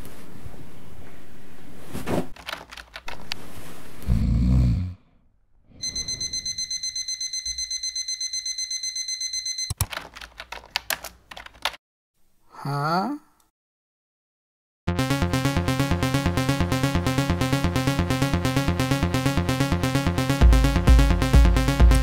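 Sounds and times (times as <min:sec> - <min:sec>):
fast keyboard typing: 0:02.4 - 0:03.2, 0:09.4 - 0:11.8
digital alarm clock beeping: 0:05.8 - 0:09.8.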